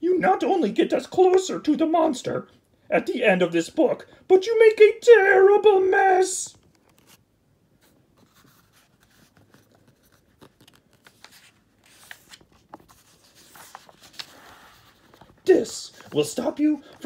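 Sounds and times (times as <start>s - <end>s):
book page turning: 6.6s - 7.2s, 7.8s - 17.0s.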